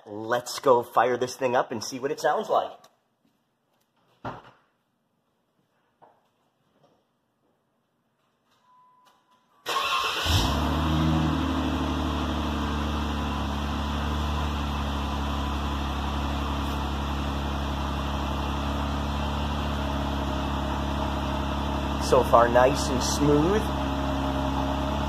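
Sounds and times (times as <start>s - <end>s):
car engine starting and idling: 9.6s - 25.0s.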